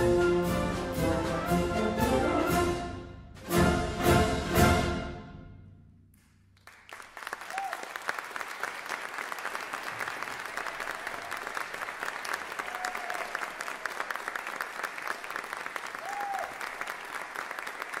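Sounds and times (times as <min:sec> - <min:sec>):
audience applauding: 0:06.2 - 0:18.0.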